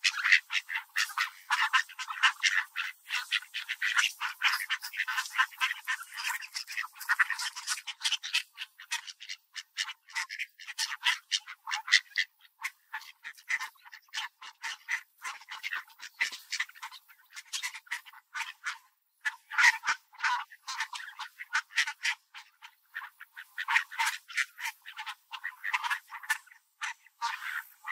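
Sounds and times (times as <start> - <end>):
ducks quacking: 0.0 - 27.9.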